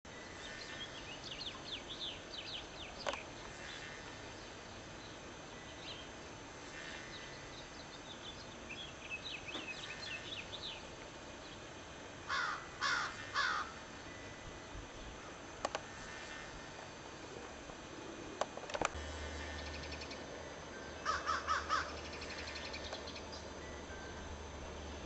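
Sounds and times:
small birds twittering: 0:00.2 - 0:16.5, 0:19.4 - 0:24.2
crow cawing: 0:12.3 - 0:13.8, 0:21.0 - 0:22.7.

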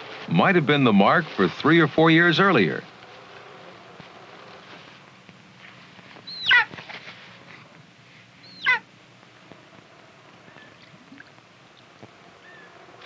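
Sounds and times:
eagle chick calling: 0:06.2 - 0:06.8, 0:08.4 - 0:08.9, 0:10.4 - 0:11.4, 0:12.4 - 0:12.8.

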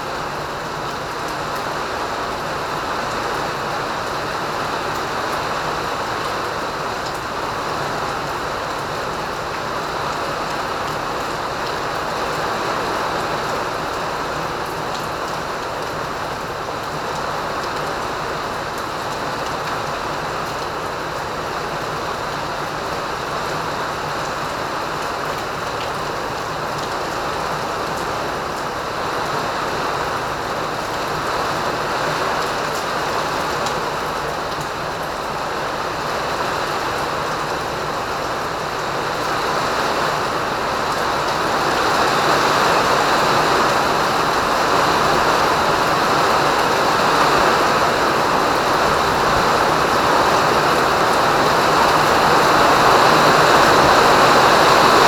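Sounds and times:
rain pouring down: 0:00.0 - 0:55.0.

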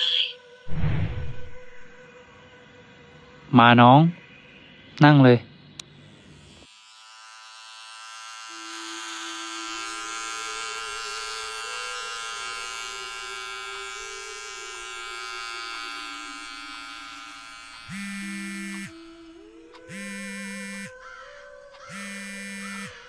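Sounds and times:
electric hair clippers buzzing: 0:06.1 - 0:23.0.

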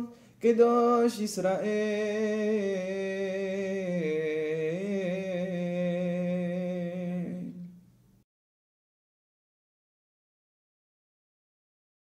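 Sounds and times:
man chanting: 0:00.0 - 0:07.8.

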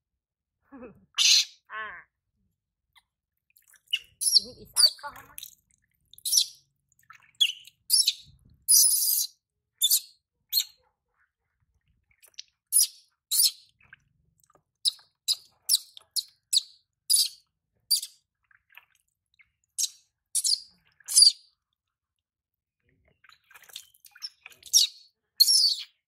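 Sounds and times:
baby monkey squealing: 0:01.2 - 0:01.6, 0:04.2 - 0:05.0, 0:20.4 - 0:21.4, 0:24.7 - 0:25.8.

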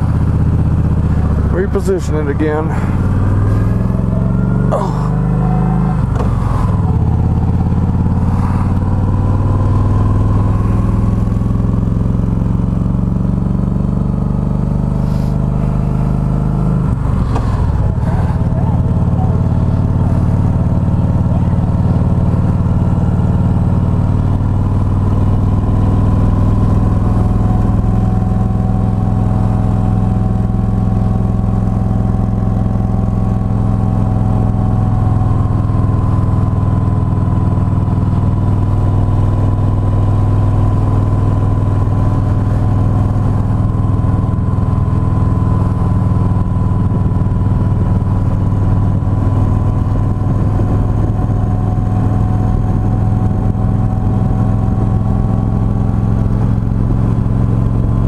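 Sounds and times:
vehicle engine droning: 0:00.0 - 0:58.0.

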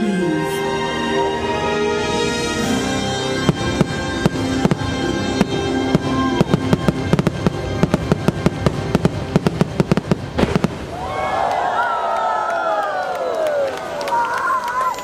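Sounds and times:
show music: 0:00.0 - 0:10.9
fireworks bursting: 0:02.5 - 0:11.5.

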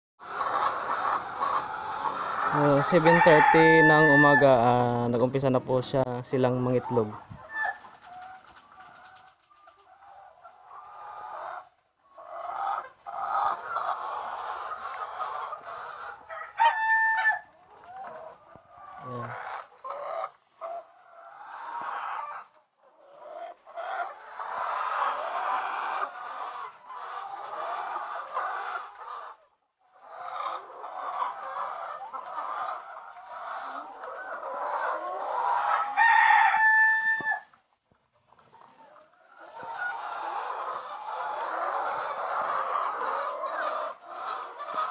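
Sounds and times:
hens clucking: 0:00.2 - 0:44.9
rooster crowing: 0:02.5 - 0:05.3, 0:16.3 - 0:17.5, 0:35.7 - 0:37.5.

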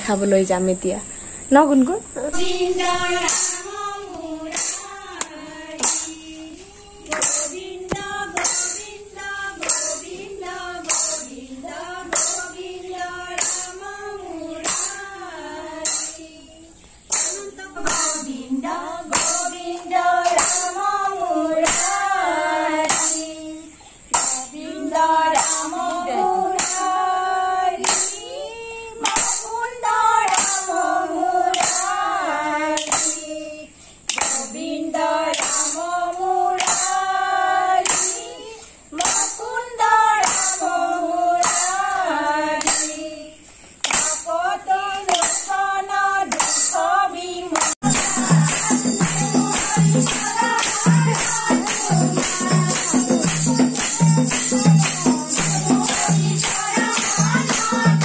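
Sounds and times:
struck ringing beat: 0:02.3 - 0:06.3, 0:17.1 - 0:20.9, 0:47.8 - 0:58.0
women singing together: 0:02.3 - 0:58.0.

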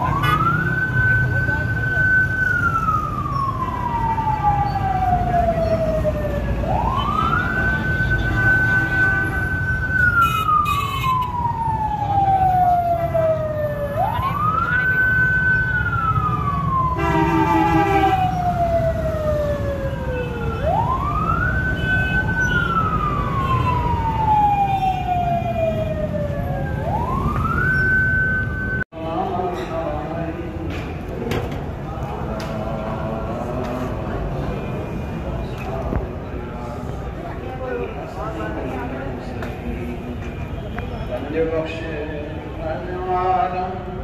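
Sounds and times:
emergency siren wailing: 0:00.0 - 0:28.9
street traffic rumble: 0:00.0 - 0:44.0
vehicle horn: 0:17.0 - 0:18.2.

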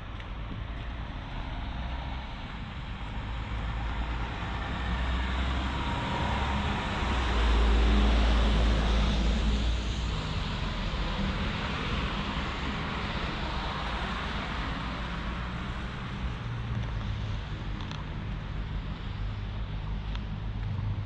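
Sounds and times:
vehicle passing by: 0:03.6 - 0:16.6.

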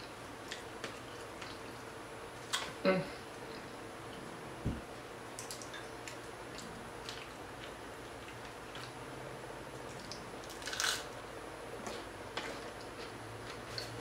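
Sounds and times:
chewing: 0:00.0 - 0:01.8, 0:05.4 - 0:09.0, 0:11.8 - 0:14.0.

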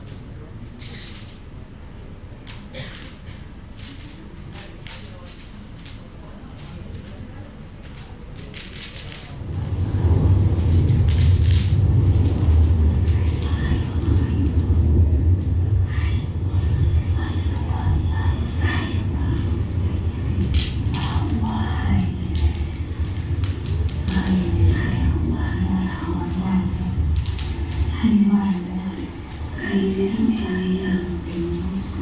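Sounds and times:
scattered clicks: 0:07.8 - 0:09.4, 0:10.0 - 0:32.0
deep low rumble: 0:08.7 - 0:32.0.

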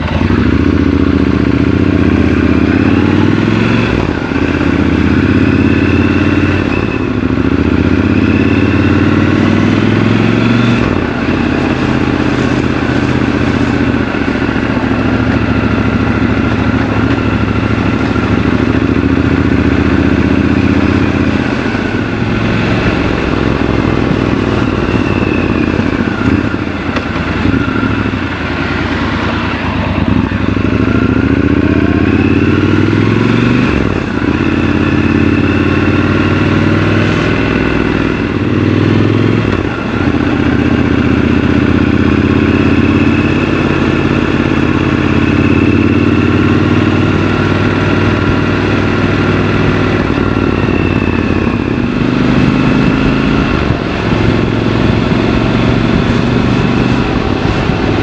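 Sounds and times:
motorcycle engine running: 0:00.0 - 0:58.0.

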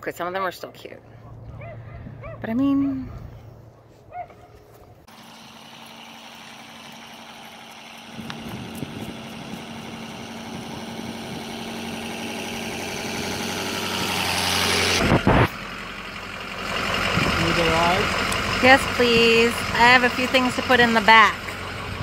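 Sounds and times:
pickup truck engine approaching: 0:03.1 - 0:22.0
loud thumps: 0:15.0 - 0:15.5.

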